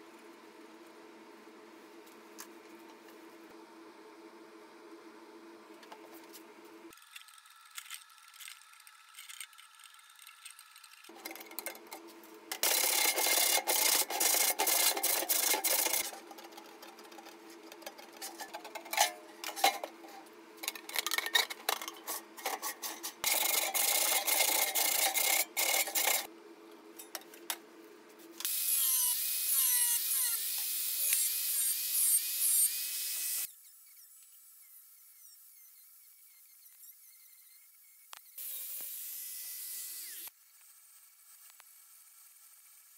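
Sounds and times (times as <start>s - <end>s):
angle grinder cutting sheet steel: 12.6s - 17.2s, 28.5s - 33.5s, 38.4s - 40.3s
tin snips shearing metal: 28.4s - 33.5s.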